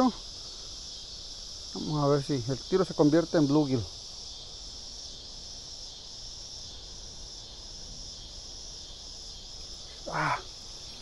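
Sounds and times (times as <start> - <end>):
insect chorus buzzing: 0.0 - 11.0.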